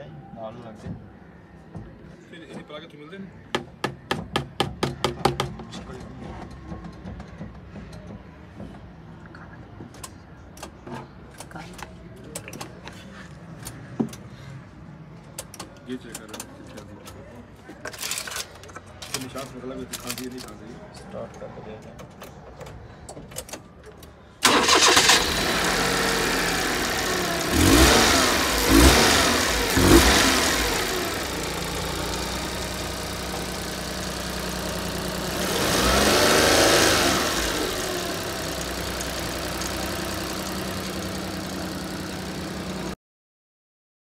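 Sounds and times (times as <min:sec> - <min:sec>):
car engine starting and idling: 0:24.4 - 0:43.0
engine revving: 0:24.4 - 0:43.0.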